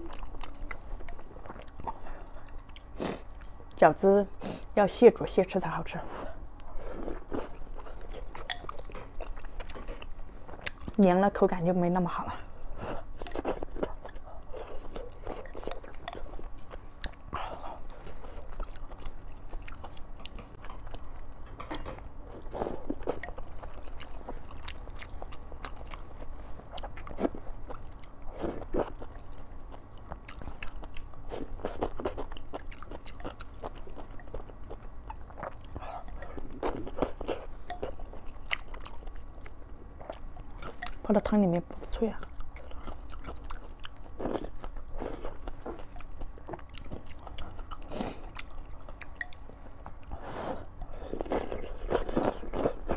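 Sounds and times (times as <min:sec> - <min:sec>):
chewing and wet slurps: 0:50.6 - 0:52.9.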